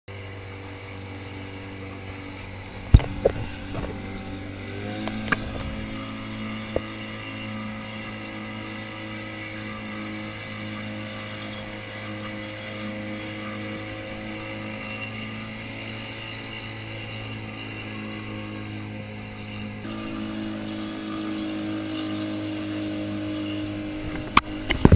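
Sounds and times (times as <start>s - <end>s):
motorboat engine running: 0.1s - 24.9s
hull knocking: 2.4s - 6.9s.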